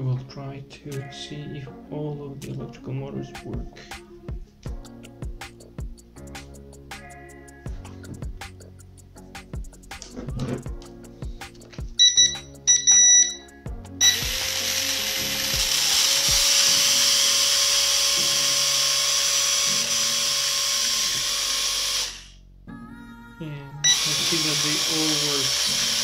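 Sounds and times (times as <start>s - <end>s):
short electronic beeps: 12.0s - 13.4s, 23.8s - 24.4s
drone motors whirring: 14.0s - 22.4s, 23.8s - 26.0s.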